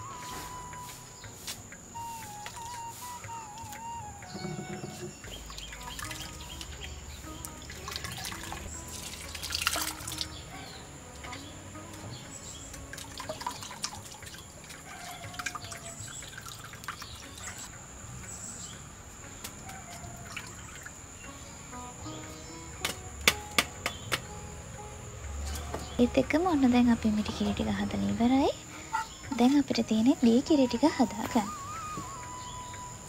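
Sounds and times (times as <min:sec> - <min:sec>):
coconut milk pouring and dripping: 0:07.6 - 0:10.4, 0:12.6 - 0:17.7.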